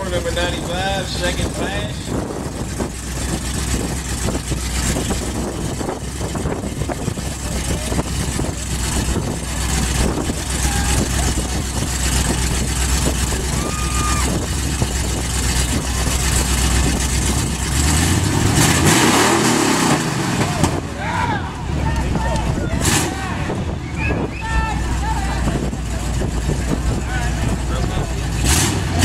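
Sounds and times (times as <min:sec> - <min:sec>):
pickup engine idling: 0:00.0 - 0:29.0
faint voices: 0:06.9 - 0:15.0, 0:20.4 - 0:29.0.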